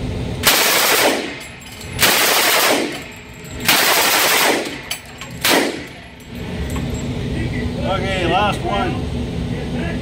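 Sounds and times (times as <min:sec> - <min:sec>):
submachine gun firing bursts: 0:00.4 - 0:01.4, 0:02.0 - 0:03.1, 0:03.7 - 0:05.9.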